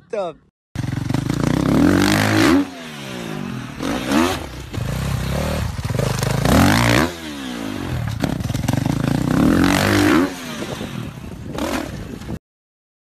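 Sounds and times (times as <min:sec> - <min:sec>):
dirt bike engines revving: 0:00.8 - 0:12.4.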